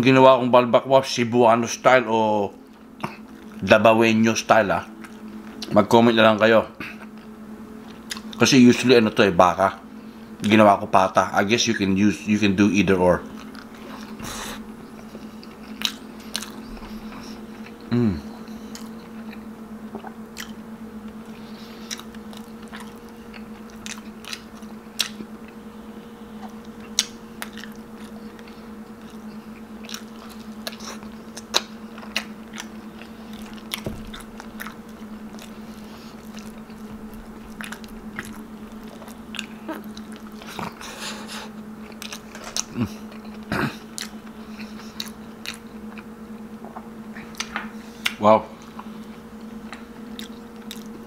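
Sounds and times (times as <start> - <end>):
steady low hum: 0.0 - 51.0
wet chewing: 7.0 - 8.4, 13.3 - 25.6, 26.4 - 51.0
lip smacks: 21.8 - 25.6, 37.5 - 46.1, 49.7 - 50.9.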